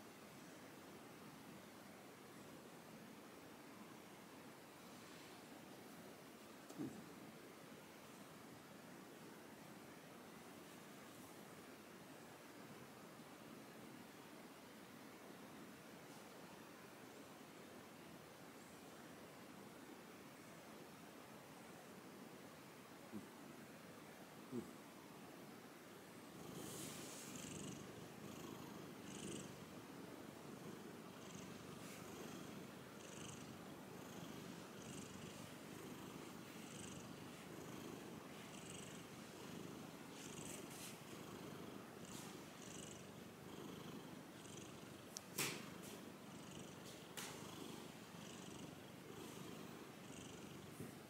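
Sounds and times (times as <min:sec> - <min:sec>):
cat purring: 0:26.2 - 0:51.0.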